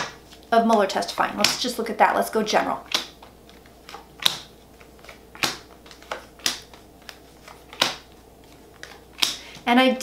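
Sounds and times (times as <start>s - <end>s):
cards snapping: 2.9s - 9.6s.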